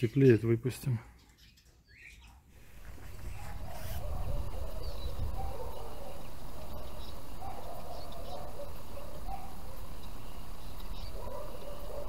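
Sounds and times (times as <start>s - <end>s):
faint bird chirps: 1.1s - 11.9s
wind rumble on microphone: 2.6s - 5.9s.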